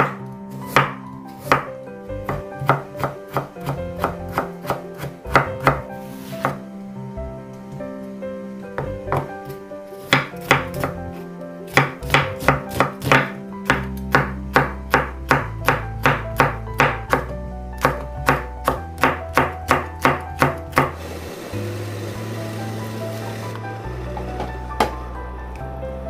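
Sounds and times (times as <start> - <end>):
knife chopping on cutting board: 0.0 - 5.8, 10.1 - 11.0, 11.7 - 21.0
background music with bass: 0.0 - 26.0.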